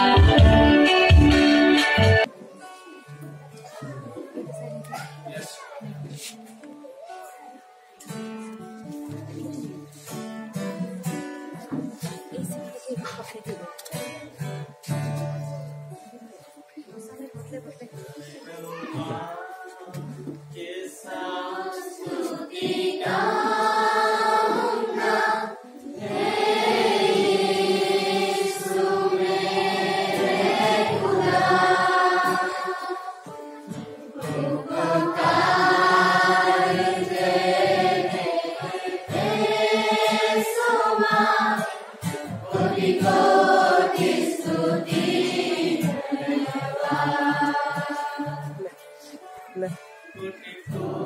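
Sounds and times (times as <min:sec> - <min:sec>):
congregation singing: 0:20.7 - 0:49.2, 0:50.0 - 0:51.0.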